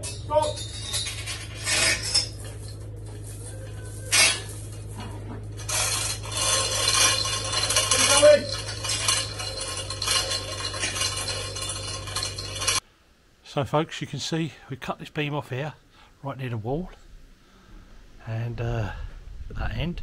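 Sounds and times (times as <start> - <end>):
hoist chain clinking and rattling: 0.0 - 12.8
low steady hum: 0.0 - 20.0.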